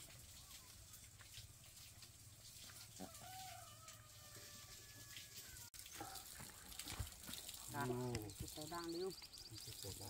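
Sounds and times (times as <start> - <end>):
faint rooster crowing: 2.7 - 5.7.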